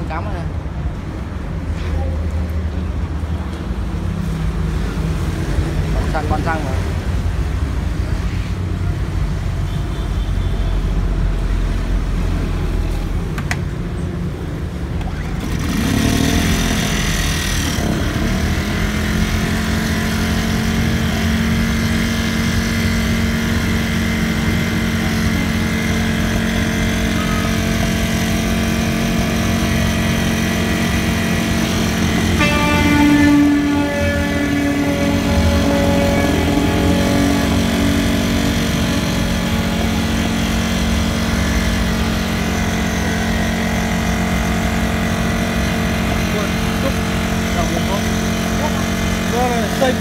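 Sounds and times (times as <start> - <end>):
portable generator engine running: 14.6 - 50.0.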